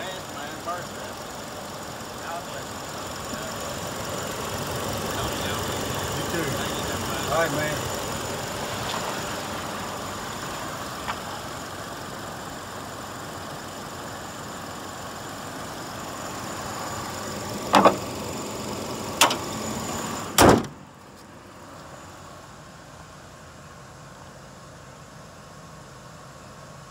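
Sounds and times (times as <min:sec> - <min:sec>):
pickup engine idling: 0:00.0 - 0:26.9
hood slamming shut: 0:17.6 - 0:18.1, 0:19.2 - 0:19.5, 0:20.3 - 0:20.8
sharp metal clunks: 0:17.7 - 0:18.0, 0:19.2 - 0:19.4, 0:20.4 - 0:20.8.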